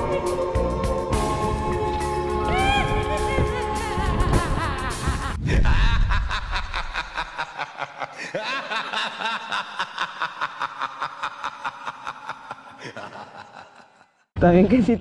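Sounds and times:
background music: 0:00.0 - 0:05.4
person chuckling: 0:03.1 - 0:14.3.

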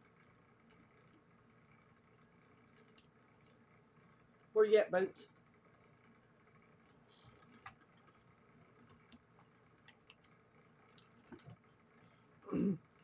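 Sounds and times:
wet chewing: 0:01.9 - 0:03.7, 0:07.2 - 0:11.9.

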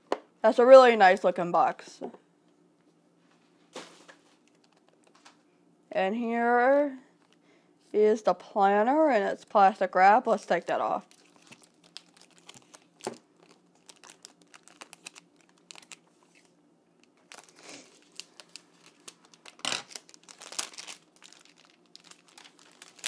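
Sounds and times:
plastic wrap crinkling: 0:03.8 - 0:05.4, 0:10.6 - 0:23.0.

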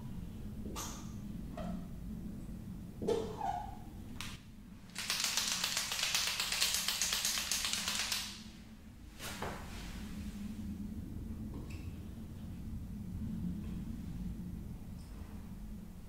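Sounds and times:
marker ball rattling: 0:04.9 - 0:08.4.

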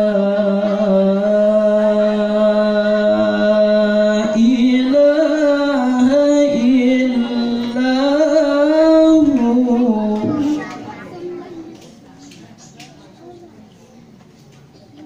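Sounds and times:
man chanting melodically: 0:00.0 - 0:10.7.

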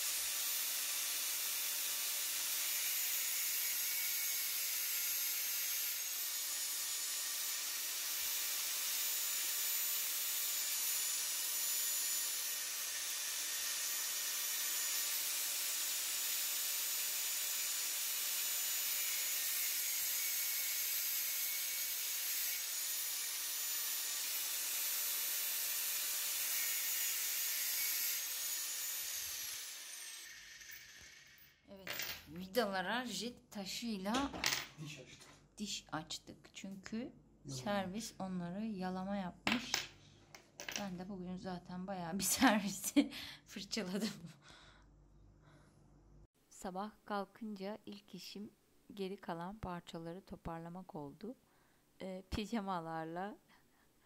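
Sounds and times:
angle grinder cutting metal: 0:00.0 - 0:31.6.

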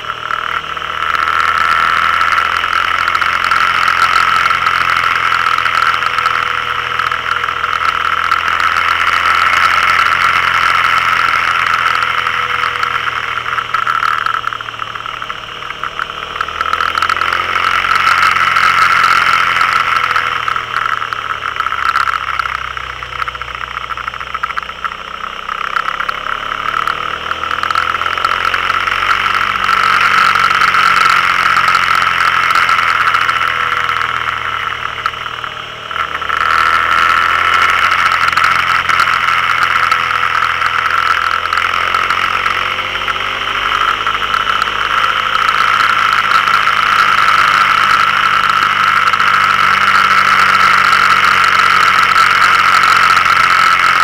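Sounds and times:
motorcycle engine at road speed: 0:00.0 - 0:54.0
wind and road noise: 0:00.0 - 0:54.0.

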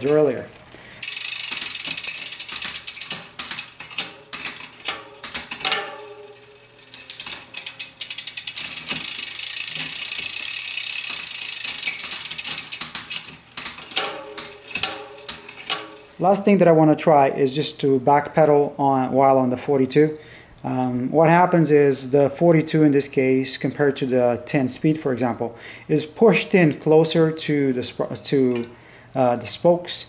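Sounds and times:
hub ratchet ticking: 0:01.0 - 0:16.4
bicycle chain running: 0:01.0 - 0:16.5.

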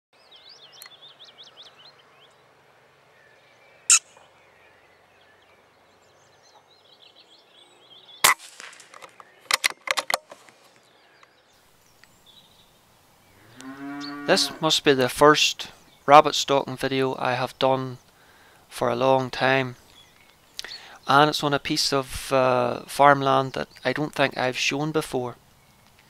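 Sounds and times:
birds singing: 0:00.2 - 0:26.0
air rifle cracks: 0:08.2 - 0:10.8
quick run of clicks: 0:08.3 - 0:10.8.

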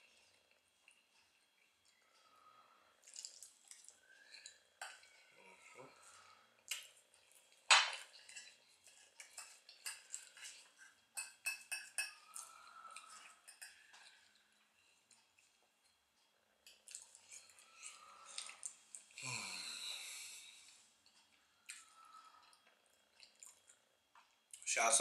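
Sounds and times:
fork clinking on plate: 0:11.2 - 0:12.2.

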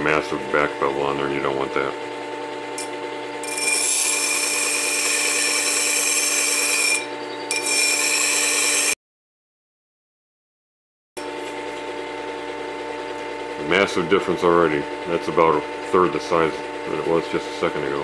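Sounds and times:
sharpener motor running: 0:01.3 - 0:09.0
metal grinding on abrasive disc: 0:02.8 - 0:09.0.

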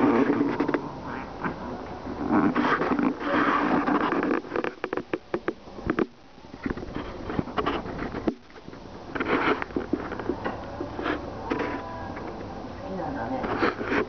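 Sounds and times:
fabric rustle: 0:00.0 - 0:05.2, 0:06.6 - 0:11.9
cat clawing fabric cushion: 0:02.2 - 0:06.2.

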